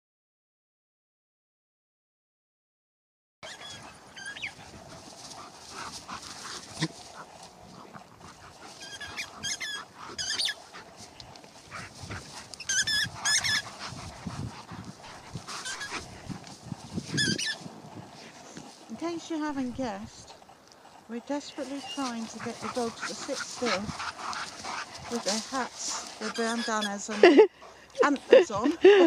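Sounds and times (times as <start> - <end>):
dogs yipping and whining: 3.4 - 17.7, 20.3 - 29.0
dogs growling roughly: 3.4 - 29.0.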